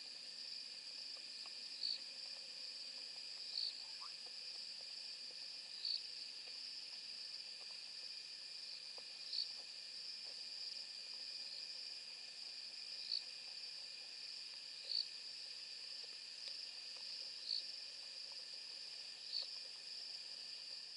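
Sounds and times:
crickets trilling: 0.1s - 20.9s
loud short cricket chirp: 3.5s - 4.2s.

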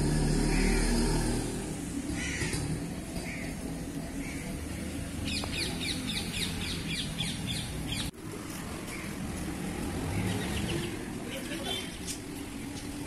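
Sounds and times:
bird chirping: 5.2s - 8.1s.

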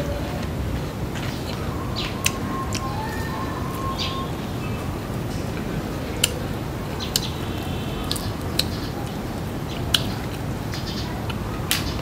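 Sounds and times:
low background noise: 0.0s - 12.0s
wet chewing with crunches: 1.1s - 4.3s, 6.1s - 12.0s.

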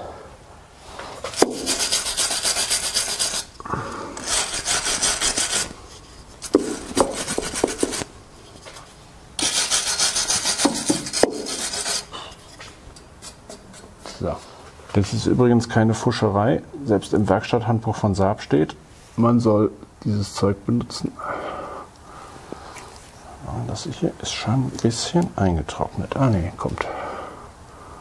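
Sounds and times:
wire brush scrubbing metal pipe: 1.2s - 3.6s, 4.2s - 14.5s.

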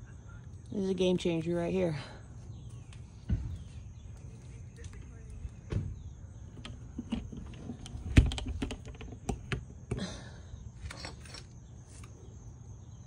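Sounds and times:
plastic door knocking shut: 5.6s - 6.1s.

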